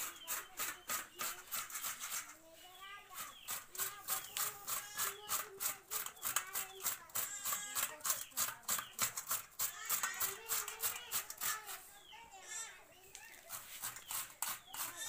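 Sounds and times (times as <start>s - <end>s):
potato rasping on metal grater: 0.0s - 2.3s, 13.5s - 15.0s.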